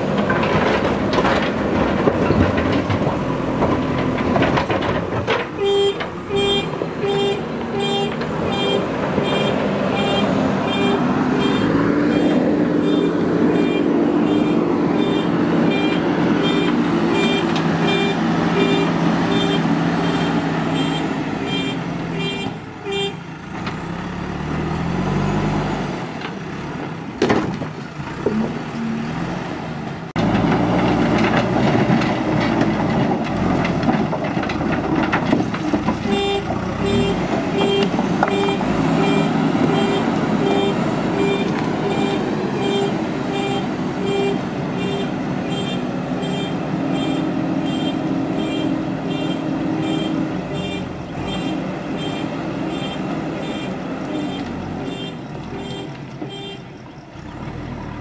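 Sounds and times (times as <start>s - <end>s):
diesel engine running and revving: 0.0s - 58.0s
reversing alarm beeping: 5.6s - 21.7s.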